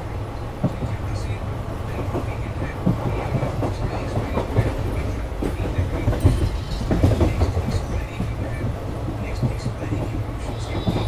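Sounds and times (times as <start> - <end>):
train wheels rumbling: 0.0 - 11.0
wheels clacking on rails: 0.0 - 11.0.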